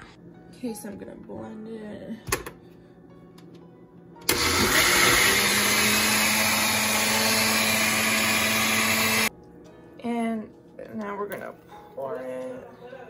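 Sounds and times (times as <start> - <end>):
blender running: 4.3 - 9.3.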